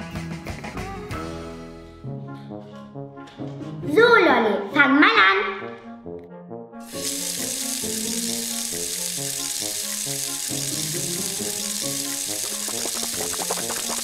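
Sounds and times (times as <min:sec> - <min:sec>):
background music: 0:00.0 - 0:14.0
toy faucet running water: 0:06.8 - 0:14.0.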